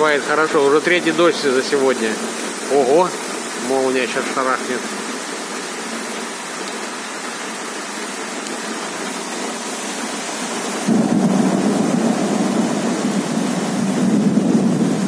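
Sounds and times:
heavy rain pouring: 0.0s - 15.0s
thunder rumble: 10.6s - 15.0s.

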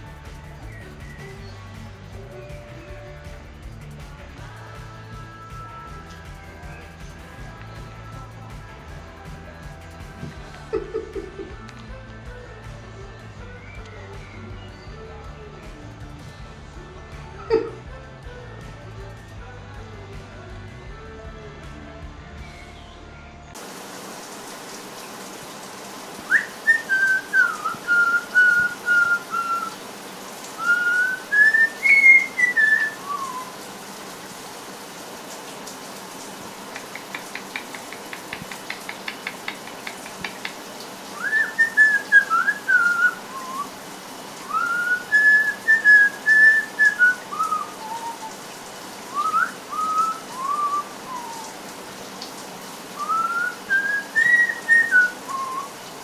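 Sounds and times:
parrot whistling a tune: 0.7s - 1.6s, 13.6s - 15.0s, 26.3s - 29.8s, 30.6s - 33.6s, 41.2s - 43.8s, 44.4s - 48.4s, 49.1s - 51.6s, 53.0s - 55.8s.

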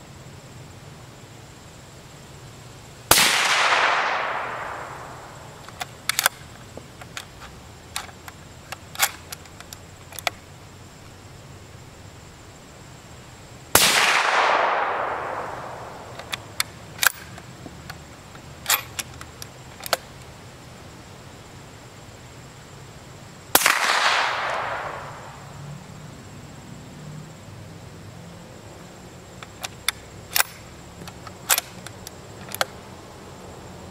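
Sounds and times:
suppressed rifle shots with echo: 3.1s - 5.6s, 13.7s - 17.3s, 23.5s - 25.5s
rifle bolt metallic clicks: 3.5s - 10.4s, 14.2s - 20.1s, 29.4s - 32.8s.

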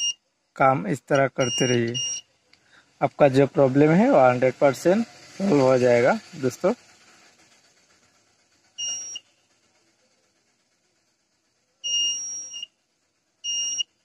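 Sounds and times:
multimeter continuity beeps: 0.0s - 0.2s, 1.1s - 2.3s, 8.8s - 9.4s, 11.8s - 12.8s, 13.4s - 13.9s.

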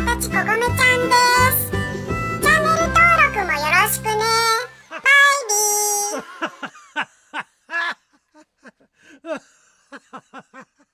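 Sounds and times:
background music: 0.0s - 6.9s.

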